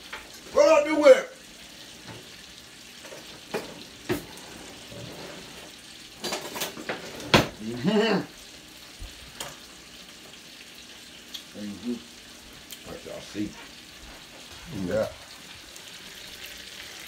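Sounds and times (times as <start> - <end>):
faint sizzle from pan: 0.0 - 17.0
metal utensils clinking on plates: 6.1 - 7.6.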